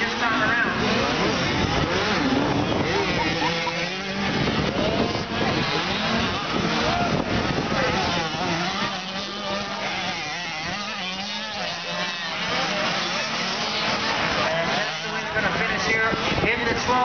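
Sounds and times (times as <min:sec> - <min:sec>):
motocross bikes revving: 0:00.0 - 0:17.0.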